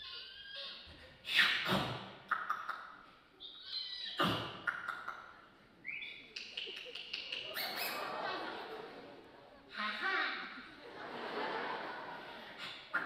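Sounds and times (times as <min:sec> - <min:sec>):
mouth-made squeaky noises: 0:00.0 - 0:05.3, 0:05.9 - 0:08.1.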